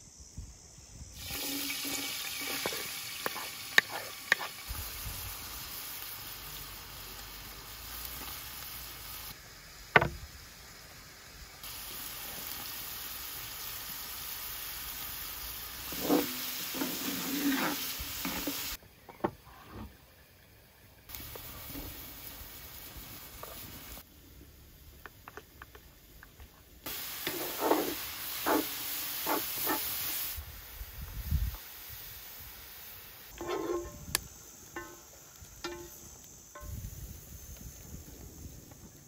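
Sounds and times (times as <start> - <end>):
onion sizzling in a pan: 1.0 - 18.8, 20.7 - 24.2, 26.8 - 39.0
wooden spoon scraping and knocking: 2.4 - 4.6, 33.3 - 34.0.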